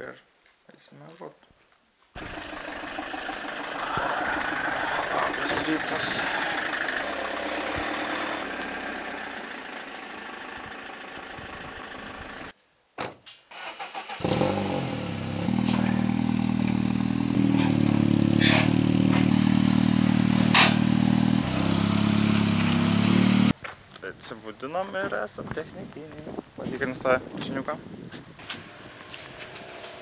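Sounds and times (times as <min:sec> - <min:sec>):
car engine starting and idling: 0:02.2 - 0:12.5, 0:13.5 - 0:23.6.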